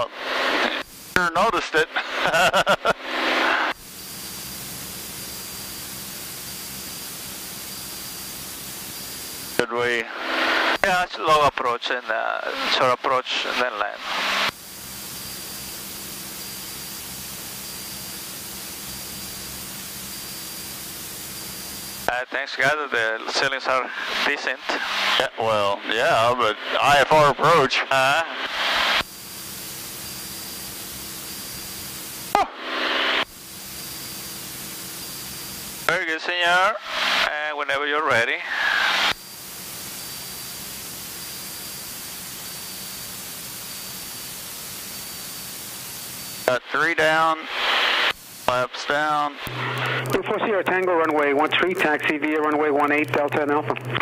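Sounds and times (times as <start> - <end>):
thin high whine: 0.0 - 54.0
steady hiss: 38.5 - 53.5.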